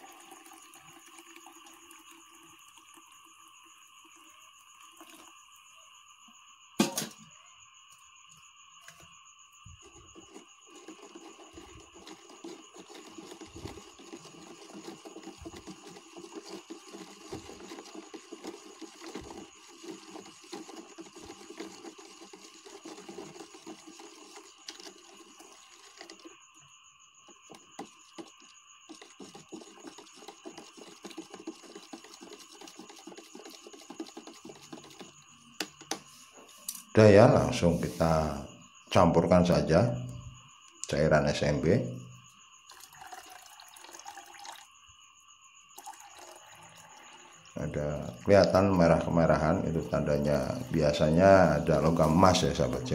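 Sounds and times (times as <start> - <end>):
spoon stirring in plastic cup: 0.0 - 3.2, 4.1 - 5.3, 9.6 - 26.4, 27.2 - 38.5, 42.7 - 44.6, 45.8 - 52.9.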